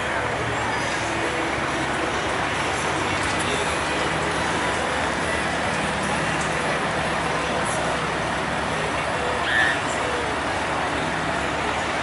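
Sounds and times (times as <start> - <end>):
diesel truck engine running: 0.0 - 12.0.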